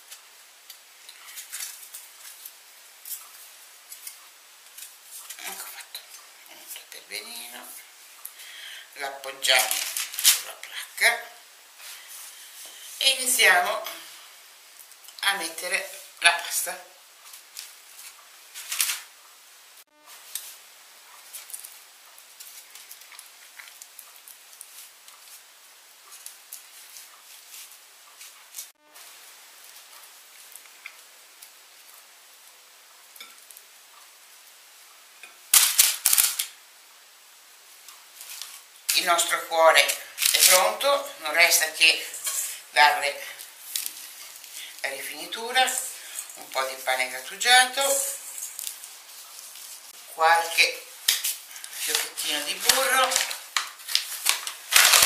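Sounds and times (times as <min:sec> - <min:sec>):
steady hiss: 0:00.0 - 0:55.0
small clicks and rustles: 0:00.1 - 0:06.9, 0:17.2 - 0:19.1, 0:20.2 - 0:28.7, 0:37.8 - 0:39.0.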